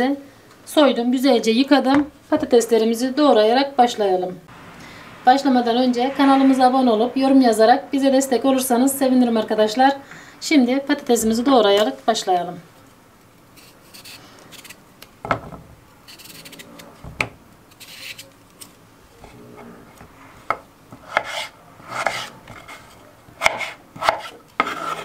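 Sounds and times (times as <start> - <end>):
knife rasping through potato: 13.6 - 14.8, 21.0 - 25.0.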